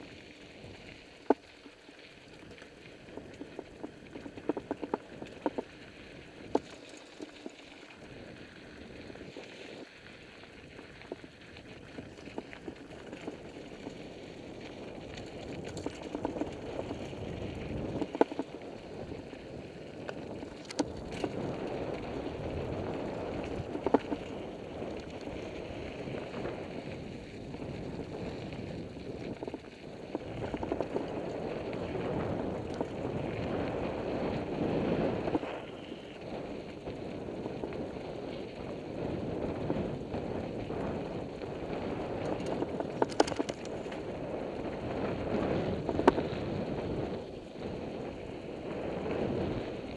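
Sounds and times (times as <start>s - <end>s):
bike rattling: 0.0s - 49.9s
bike tyres crunching over gravel: 0.0s - 49.9s
sharp clacks from stones: 42.2s - 44.0s.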